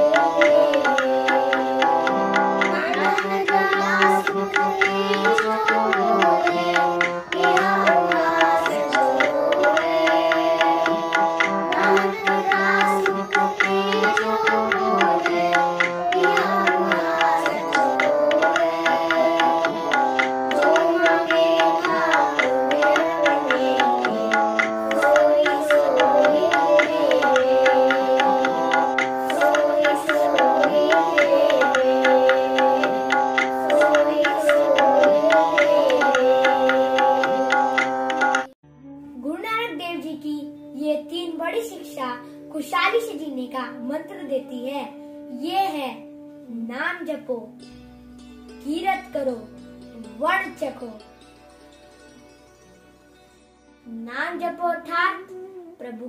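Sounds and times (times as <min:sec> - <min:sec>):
children singing a hymn: 0:00.0 - 0:38.5
tabla: 0:00.0 - 0:38.6
steady sustained accompaniment: 0:00.0 - 0:39.4.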